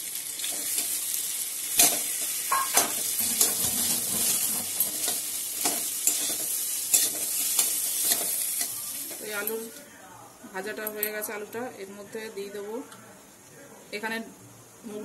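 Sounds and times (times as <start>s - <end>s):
potato sizzling in hot oil: 0.0s - 9.8s
metal spatula scraping a pan: 1.8s - 8.9s.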